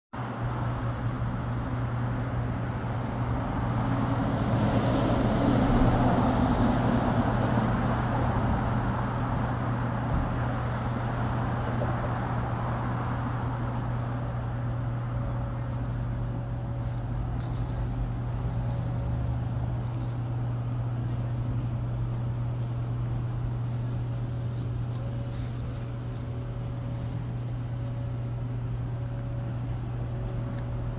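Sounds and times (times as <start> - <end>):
street traffic hum: 0.2 - 30.9
vehicle passing by: 3.2 - 13.6.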